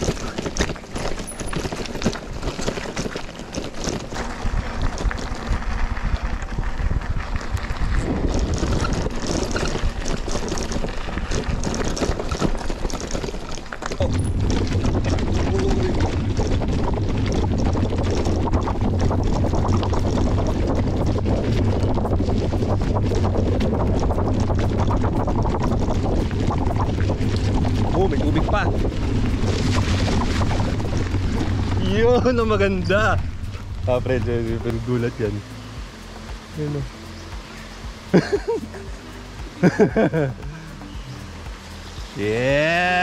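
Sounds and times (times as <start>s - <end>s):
bike rattling over bumps: 0.0s - 43.0s
wind rushing over microphone: 3.9s - 37.1s.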